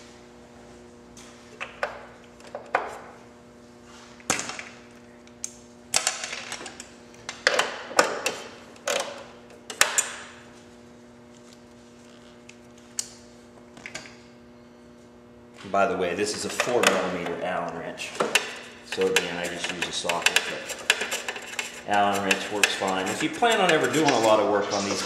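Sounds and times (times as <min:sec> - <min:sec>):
wrench clicking and scraping on bolt: 0:18.3 - 0:24.2.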